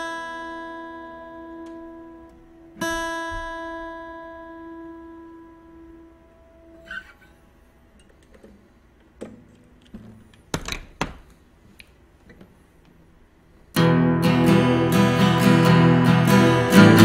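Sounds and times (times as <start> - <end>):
acoustic guitar chord ringing: 0.0 - 7.7, 13.8 - 17.0
loud guitar strumming: 13.8 - 17.0.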